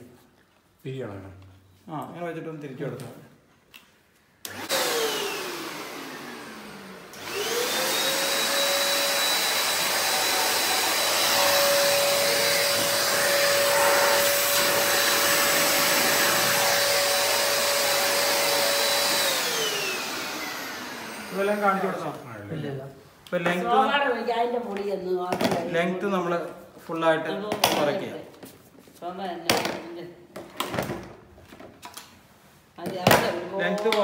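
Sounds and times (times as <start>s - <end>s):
handheld vacuum cleaner motor whine: 4.5s - 22.2s.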